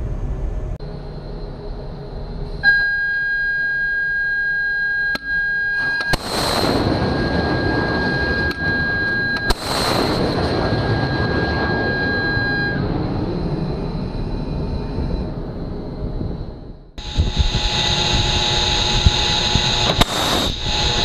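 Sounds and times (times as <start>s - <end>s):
steady high tone: 0.8s - 16.0s
missile launch crack and roar: 6.1s - 16.6s, 19.8s - 21.0s.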